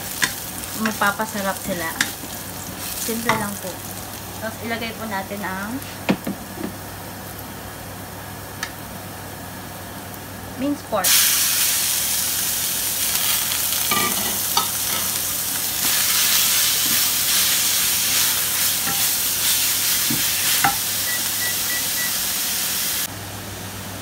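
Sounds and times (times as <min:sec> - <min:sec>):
meat sizzling in oil: 0:00.0 - 0:07.6, 0:11.0 - 0:23.1
spatula scraping a wok: 0:15.8 - 0:20.8.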